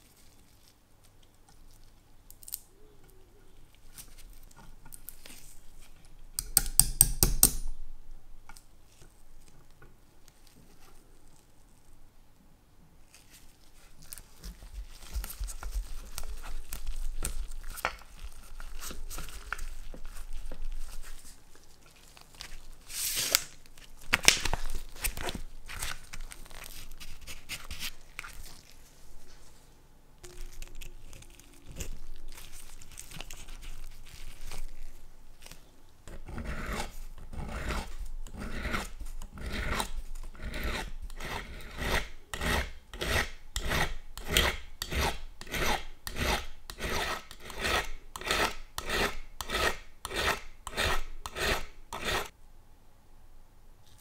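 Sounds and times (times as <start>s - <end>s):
hand files rasping on metal: 36.2s - 52.3s.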